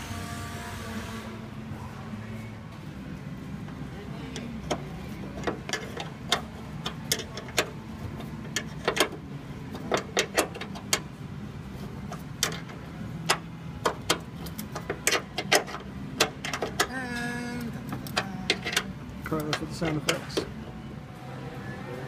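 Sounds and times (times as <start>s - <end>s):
clicks and taps on bolt: 4.4s - 7.7s, 9.8s - 11.0s, 12.1s - 16.9s.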